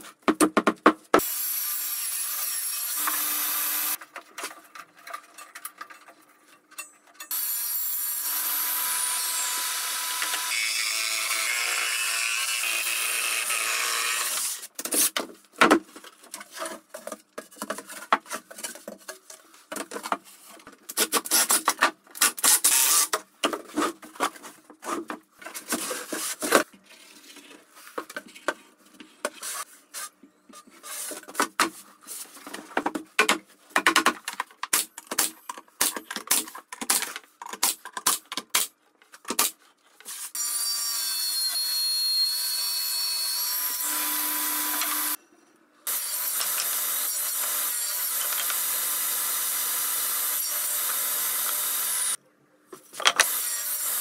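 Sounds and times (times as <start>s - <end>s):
table saw cutting plywood: 1.2s - 4.0s, 40.4s - 45.2s, 45.9s - 52.2s, 53.2s - 54.0s.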